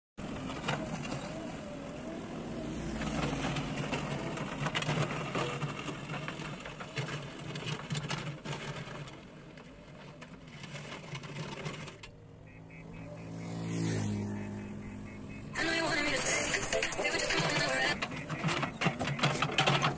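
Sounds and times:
diesel engine running: 0:00.2 - 0:19.9
bucket scraping rocky soil: 0:02.8 - 0:12.1.

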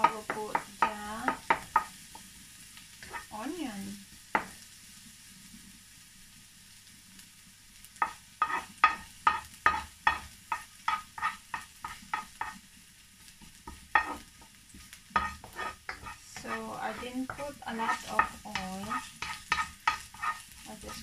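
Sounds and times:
faint sizzle of frying: 0:00.0 - 0:21.0
spatula scraping a wok: 0:03.0 - 0:03.4, 0:08.0 - 0:12.7, 0:13.6 - 0:21.0.

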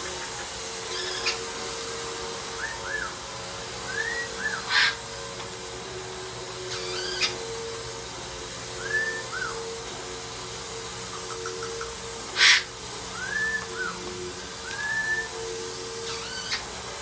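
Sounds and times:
steady whirring hum: 0:00.0 - 0:17.0
parrots chirping: 0:00.2 - 0:01.6, 0:02.6 - 0:05.1, 0:06.7 - 0:07.7, 0:08.8 - 0:09.6, 0:11.0 - 0:16.8
parrot harsh call: 0:00.8 - 0:01.5, 0:02.6 - 0:03.2, 0:03.9 - 0:05.1, 0:06.7 - 0:07.5, 0:08.8 - 0:09.6, 0:11.1 - 0:16.7.

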